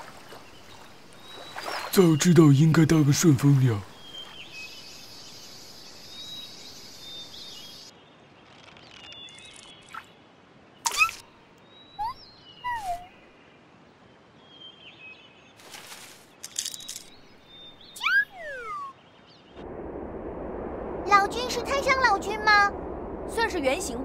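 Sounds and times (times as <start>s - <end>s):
birds chirping: 0.0s - 10.2s, 10.9s - 19.6s.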